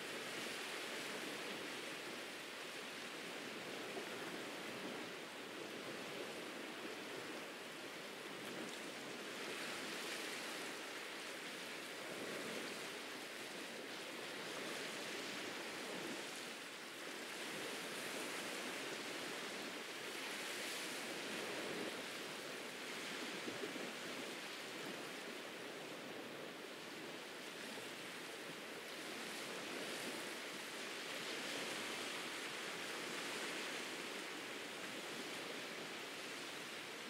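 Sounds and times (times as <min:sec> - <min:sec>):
ocean surf on a beach: 0:00.0 - 0:37.0.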